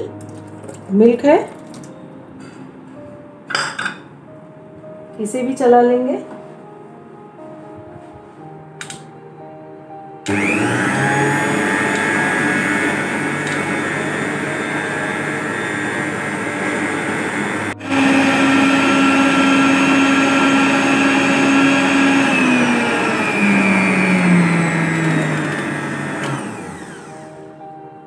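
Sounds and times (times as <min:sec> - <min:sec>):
electric stand mixer whisking batter: 0:10.3 - 0:27.3.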